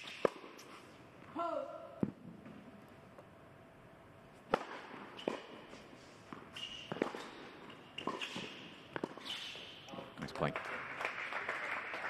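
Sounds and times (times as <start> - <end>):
tennis ball hit and bouncing: 0.0 - 0.7, 4.4 - 9.6.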